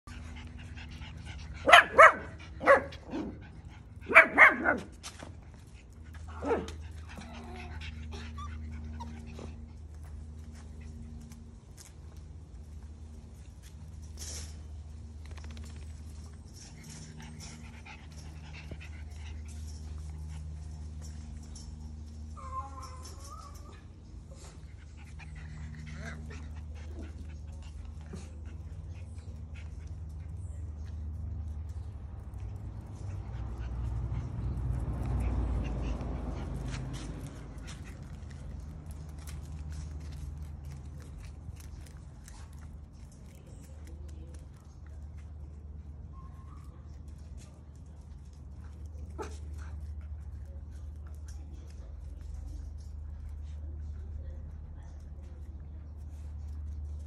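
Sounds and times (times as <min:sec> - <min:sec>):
puppies yapping barks: 0:01.6 - 0:03.4, 0:04.1 - 0:05.0
puppies whining: 0:22.3 - 0:24.5.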